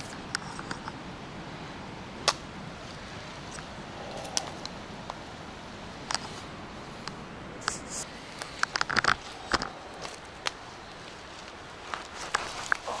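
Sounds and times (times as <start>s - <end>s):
steady hiss: 0.0s - 13.0s
footsteps on forest trail: 8.0s - 13.0s
dry leaves crunching: 9.2s - 13.0s.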